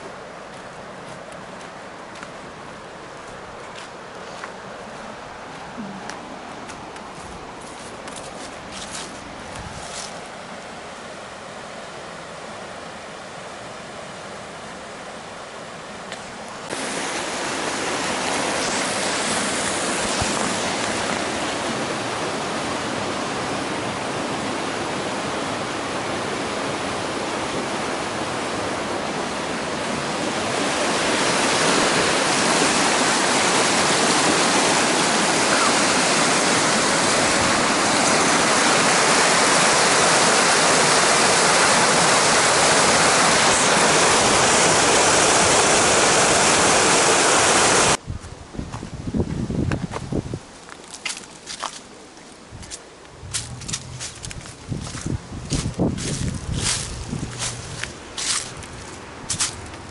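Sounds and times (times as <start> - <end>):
water rushing through dam gate: 10.4 - 48.0.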